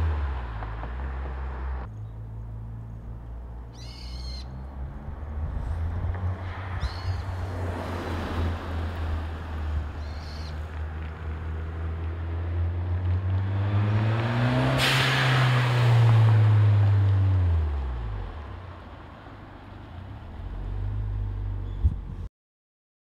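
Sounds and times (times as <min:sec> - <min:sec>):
car engine accelerating past: 0:11.0 - 0:18.6.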